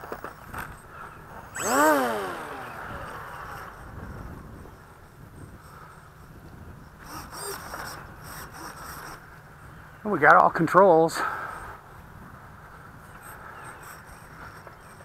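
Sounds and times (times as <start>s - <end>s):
model plane propeller whine: 0.0s - 10.0s, 11.5s - 15.0s
servo buzz: 0.1s - 5.0s, 6.9s - 9.3s.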